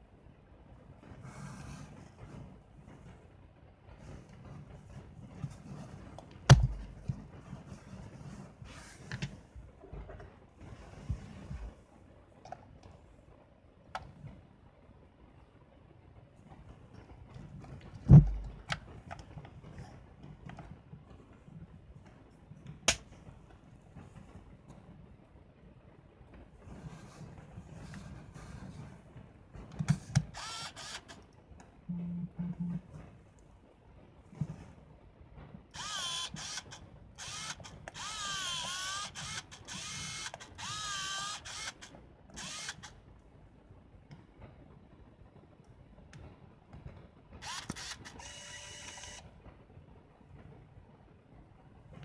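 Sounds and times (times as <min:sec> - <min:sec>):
dull camera thump: 0:06.5 - 0:07.0, 0:18.1 - 0:18.6
camera zoom motor whirring: 0:30.2 - 0:31.2, 0:35.8 - 0:43.0, 0:47.4 - 0:49.2.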